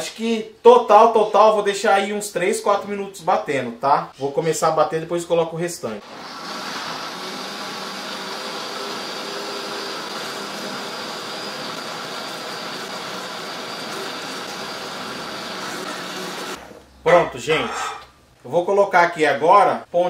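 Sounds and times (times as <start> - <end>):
blender running: 6.0 - 16.7.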